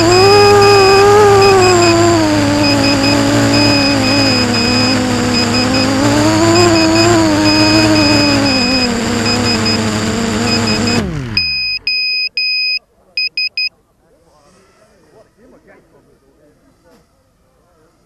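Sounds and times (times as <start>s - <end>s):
drone motors whirring: 0.0s - 11.9s
high electronic beep: 0.0s - 13.6s.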